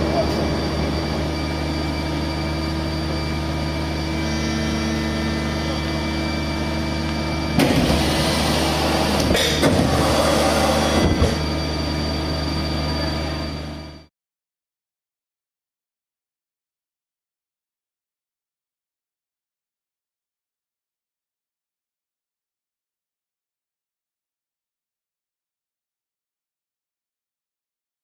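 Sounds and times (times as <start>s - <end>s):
machinery hum with fixed tones: 0.0s - 14.1s.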